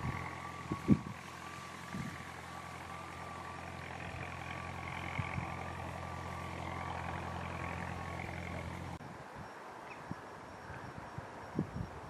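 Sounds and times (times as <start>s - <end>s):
jet engines running: 0.0s - 9.0s.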